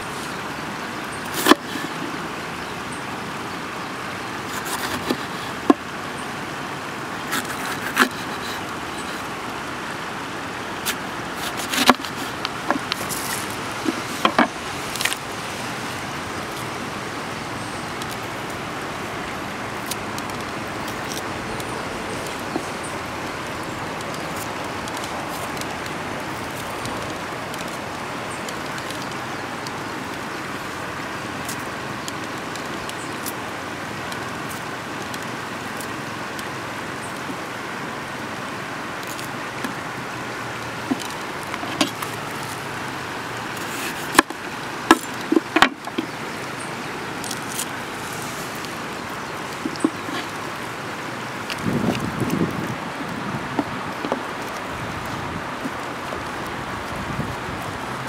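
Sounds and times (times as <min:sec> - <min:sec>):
river rushing: 0:00.0 - 0:58.0.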